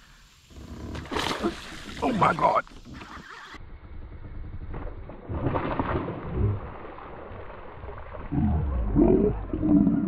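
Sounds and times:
thrashing water: 5.3 - 9.5.

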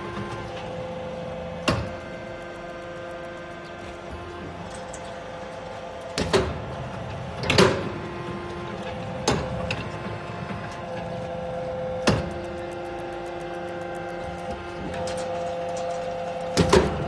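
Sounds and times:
press machine hum: 0.0 - 17.0.

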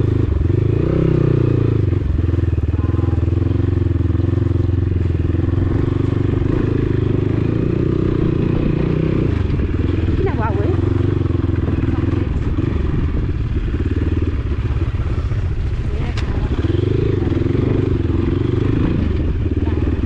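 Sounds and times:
dirt bike engine running: 0.0 - 20.0.

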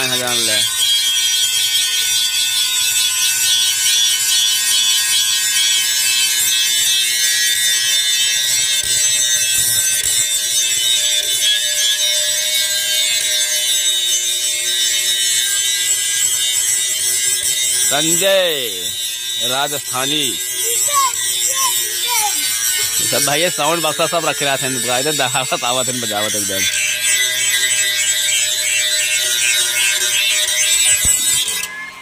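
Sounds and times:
angle grinder grinding metal: 0.0 - 32.0.

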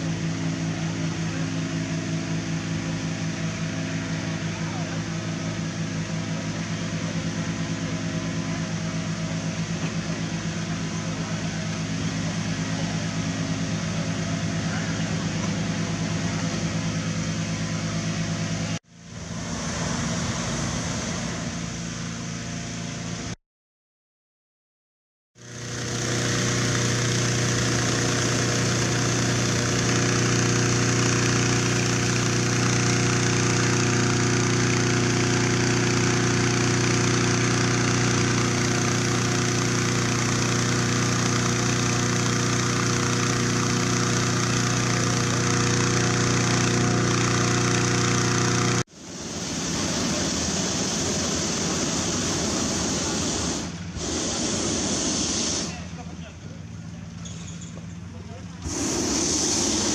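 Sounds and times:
small engine running: 0.0 - 23.4, 25.4 - 59.9
even rushing noise: 19.0 - 22.5, 58.6 - 59.9.

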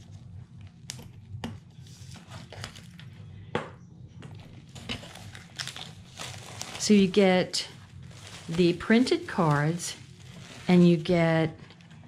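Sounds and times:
cellophane wrapper crackling: 4.6 - 12.0.

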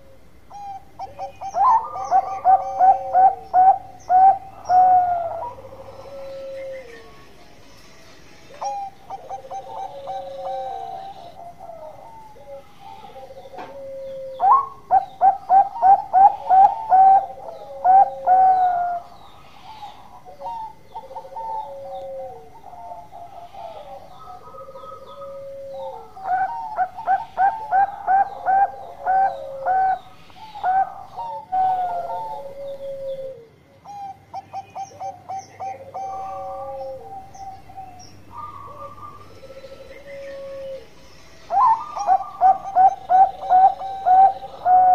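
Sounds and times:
dove soft falling coos: 9.2 - 14.7.

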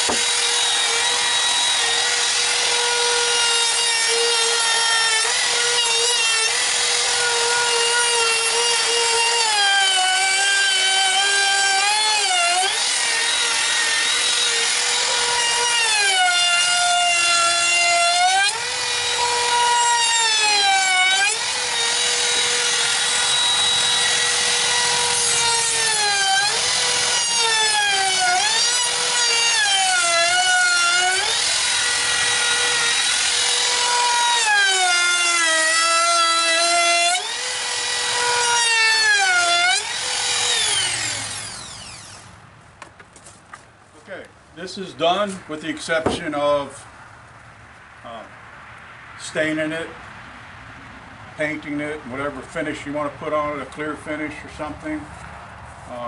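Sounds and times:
router bit cutting wood: 0.0 - 42.3
trim router whining: 0.0 - 42.3.

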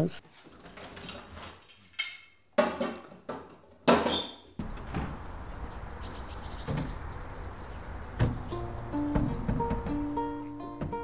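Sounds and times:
wooden shutters knocking and clattering: 0.4 - 1.8, 2.6 - 5.5, 6.6 - 7.3, 8.0 - 11.0.

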